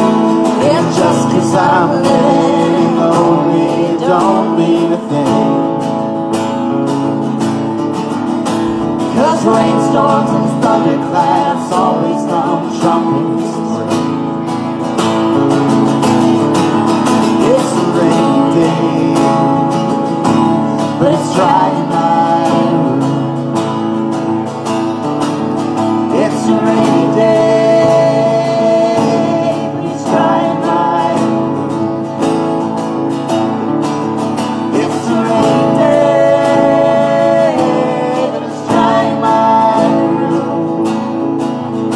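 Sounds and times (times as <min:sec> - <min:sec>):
person singing: 0:00.0 - 0:06.2, 0:08.7 - 0:14.3, 0:17.2 - 0:23.8, 0:25.9 - 0:32.2, 0:34.4 - 0:41.4
strummed acoustic guitars: 0:00.0 - 0:41.9.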